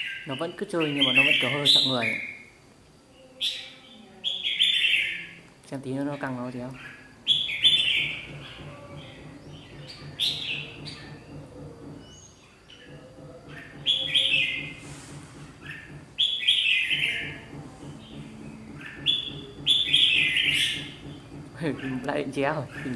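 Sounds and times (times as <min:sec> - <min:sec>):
bulbuls chirping: 0:00.0 - 0:22.9.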